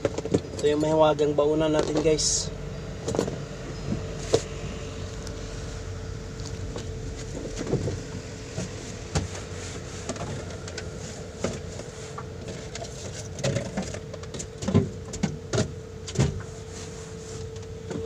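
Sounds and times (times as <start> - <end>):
steady hum: 0.0 - 18.0
knocks and clatters of handling: 6.5 - 16.5.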